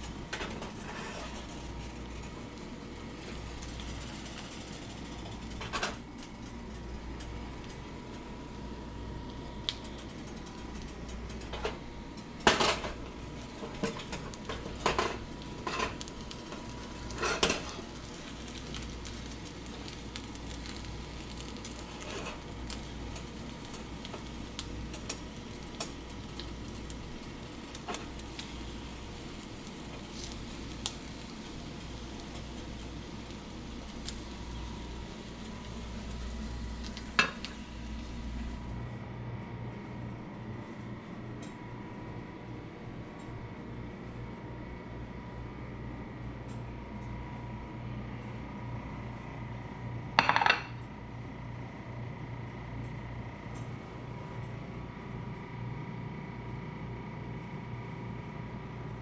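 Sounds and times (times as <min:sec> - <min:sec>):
eggs cooking hiss: 0:00.0 - 0:08.2, 0:12.4 - 0:38.8
spatula scraping frying pan: 0:00.4 - 0:01.8.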